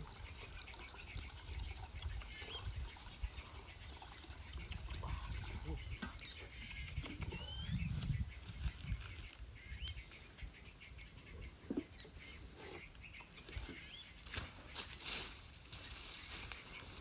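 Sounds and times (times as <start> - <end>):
footsteps on dry leaves: 13.6 - 17.0.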